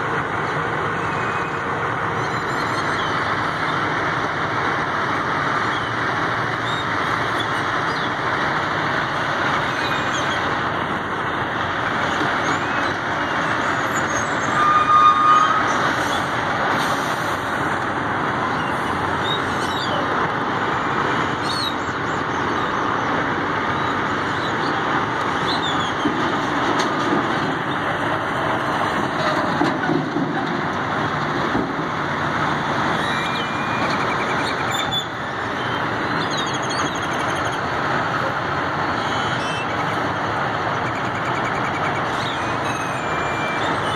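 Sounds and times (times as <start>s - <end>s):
idling trucks rumble: 0.0s - 43.9s
flock of birds chirping: 9.4s - 14.6s, 18.4s - 20.2s, 20.8s - 28.2s, 32.8s - 37.9s, 38.8s - 43.9s.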